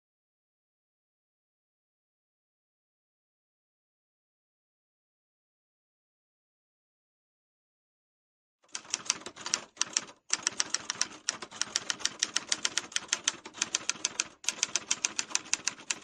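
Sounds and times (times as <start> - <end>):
typewriter keys clacking: 8.7 - 16.0.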